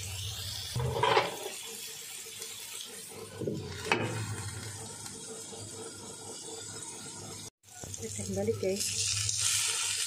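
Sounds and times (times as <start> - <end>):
tofu sizzling in a skillet: 0.0 - 4.8, 7.7 - 10.0.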